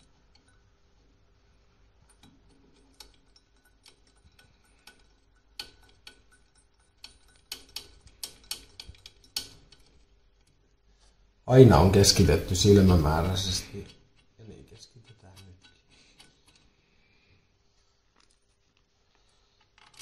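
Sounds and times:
metal tools clicking and tapping: 0.0 - 0.8, 2.0 - 10.6, 12.1 - 16.7.

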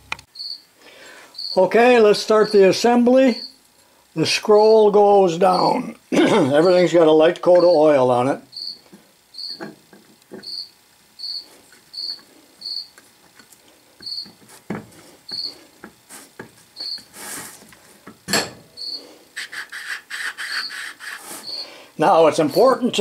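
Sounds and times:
cricket chirping: 0.3 - 0.7, 1.3 - 1.6, 8.5 - 9.7, 10.4 - 13.0, 14.0 - 14.3, 16.8 - 17.1, 18.7 - 19.0.

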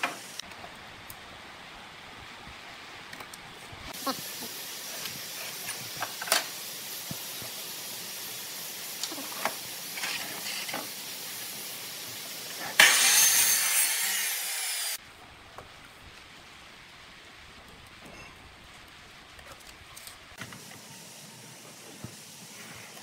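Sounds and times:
miter saw cutting wood: 12.6 - 15.0.

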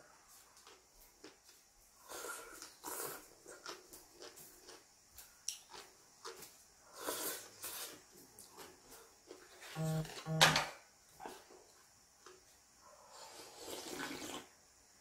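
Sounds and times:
chewing and mouth clicks: 0.6 - 1.6, 2.5 - 6.6
noodles slurped: 13.2 - 14.5.

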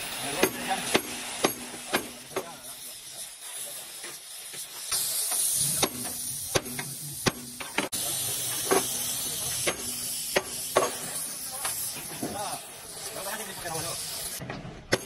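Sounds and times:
cutting torch hissing: 0.0 - 15.0
sledgehammer striking steel: 14.4 - 15.0.

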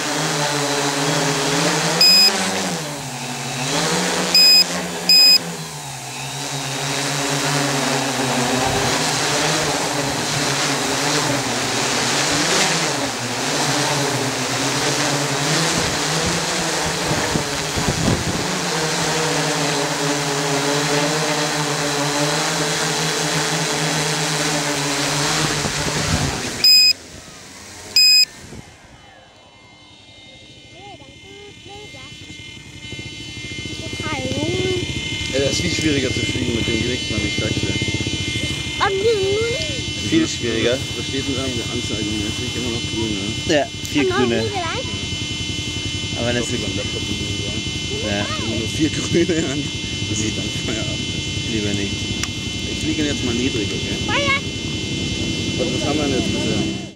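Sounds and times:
drone propellers whining: 0.0 - 56.9
sharp electronic beeps: 2.0 - 2.4, 4.4 - 5.4, 26.6 - 27.0, 28.0 - 28.3.

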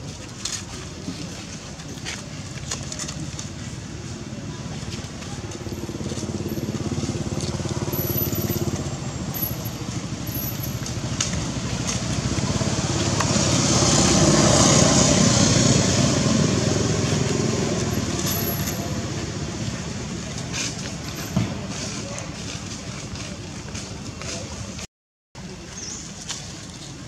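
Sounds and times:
vehicle engine passing by: 4.0 - 24.4.

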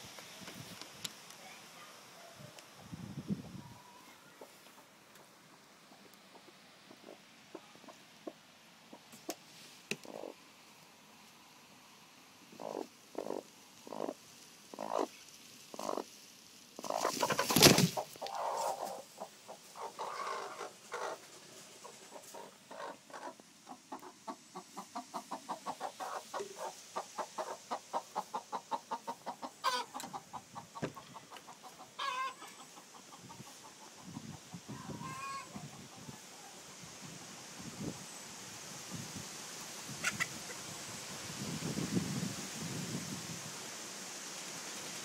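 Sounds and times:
chicken clucking: 5.9 - 9.1, 10.0 - 10.4, 12.6 - 15.1, 15.7 - 16.1, 16.8 - 36.3, 40.0 - 40.6.

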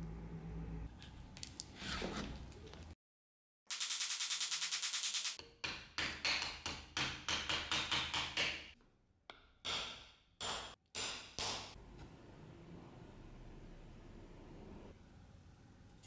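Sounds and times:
hammer striking steel punch: 9.6 - 11.8.

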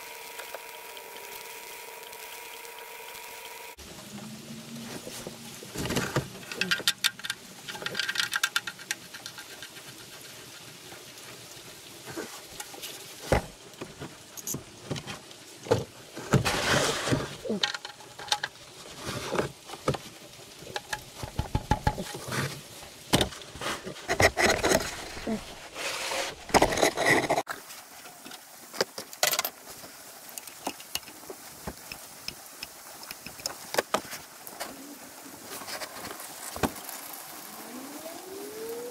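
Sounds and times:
drain plug clicks and scrapes: 24.0 - 25.3, 26.3 - 27.4
small ticks: 30.3 - 33.9.

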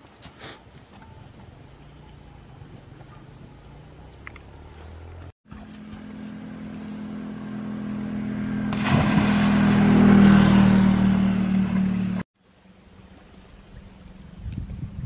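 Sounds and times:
motor engine drone: 1.8 - 12.3
person splashing into water: 8.6 - 10.6
churning water: 8.7 - 12.2.

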